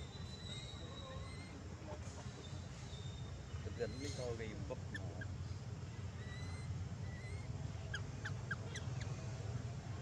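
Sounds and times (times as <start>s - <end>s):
small animal squeaking: 0.2s - 1.6s, 3.8s - 5.3s, 6.2s - 9.1s.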